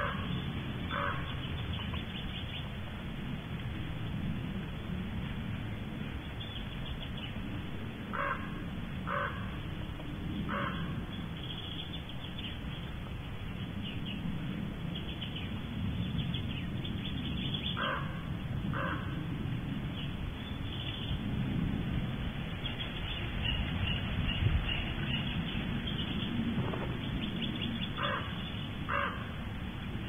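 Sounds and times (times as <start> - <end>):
harsh bird calls: 0.0 - 2.8, 8.1 - 9.6, 10.5 - 12.6, 16.2 - 19.2, 22.6 - 29.4
steady low hum: 0.0 - 30.0.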